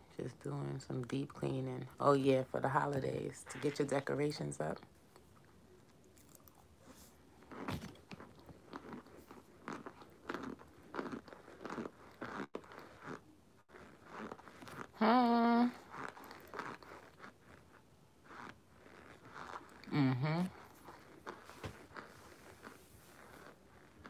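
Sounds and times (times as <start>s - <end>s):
chewing and crunching: 4.8s - 15.0s, 15.6s - 24.0s.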